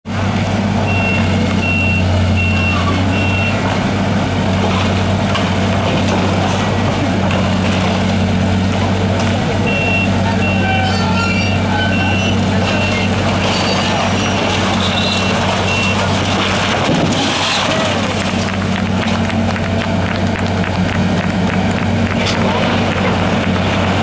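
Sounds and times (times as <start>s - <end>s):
excavator diesel engine running: 0.1s - 24.0s
reversing alarm beeping: 0.9s - 3.6s, 9.6s - 13.2s
concrete cracking: 3.7s - 9.6s, 12.3s - 24.0s.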